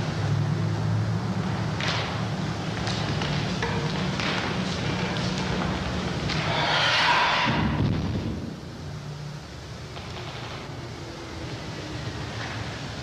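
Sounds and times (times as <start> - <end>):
film soundtrack hum and hiss: 0.0 - 13.0
loud rushing noise: 4.5 - 8.8.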